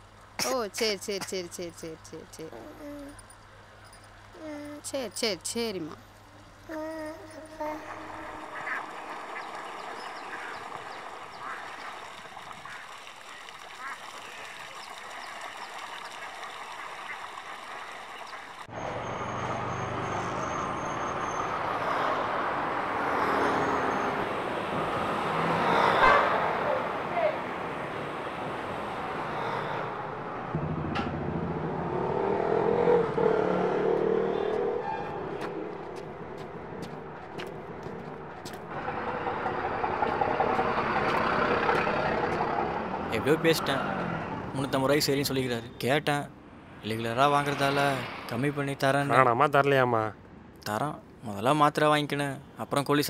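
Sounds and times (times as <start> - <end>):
vehicle engines: 0.0 - 51.2
motor scooters passing: 18.6 - 44.6
truck engine running close: 18.6 - 44.8
lorry passing: 18.7 - 44.9, 46.2 - 49.6
light footsteps: 35.4 - 38.7.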